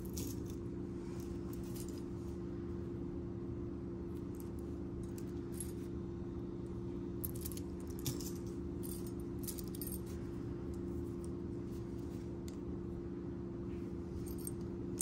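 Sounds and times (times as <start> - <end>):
small metal pieces clinking: 0.0 - 0.6, 7.2 - 10.1
low hum: 0.0 - 15.0.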